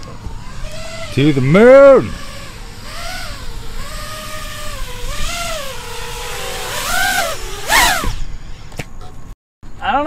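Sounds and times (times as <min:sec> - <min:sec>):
drone motors whining: 0:00.0 - 0:08.8.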